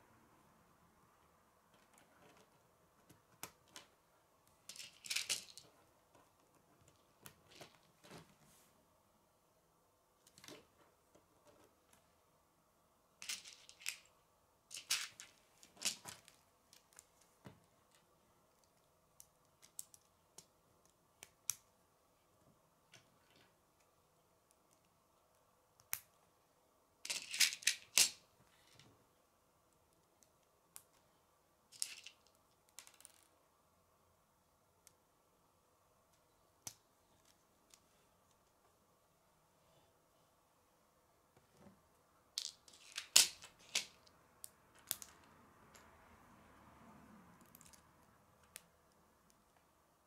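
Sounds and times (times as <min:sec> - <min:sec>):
plastic pieces clicking together: 0:04.7 - 0:05.7, 0:27.1 - 0:28.2, 0:42.4 - 0:44.1, 0:44.8 - 0:45.8
plastic pieces rattling: 0:04.7 - 0:05.7, 0:13.2 - 0:14.1, 0:14.7 - 0:16.4, 0:27.1 - 0:28.2, 0:31.8 - 0:33.3, 0:42.4 - 0:44.0.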